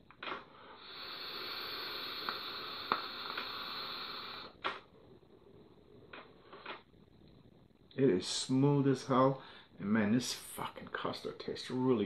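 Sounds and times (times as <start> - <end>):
faint crackles: 0.0 - 12.0
airy hiss of vape draw: 0.6 - 4.7.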